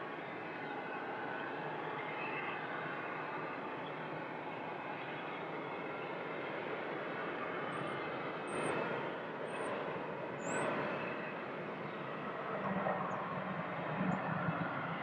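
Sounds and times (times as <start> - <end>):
jet engines rushing: 3.4 - 15.0.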